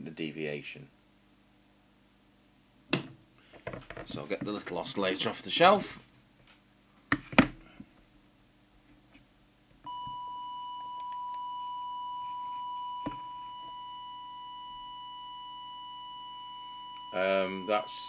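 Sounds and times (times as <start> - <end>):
steady whistle-like test tone: 9.9 - 18.0.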